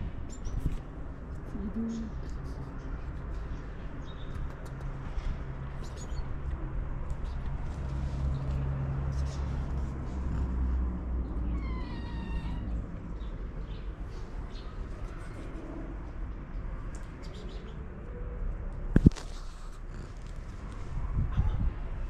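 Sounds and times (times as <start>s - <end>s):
cat meowing: 11.5s - 12.8s.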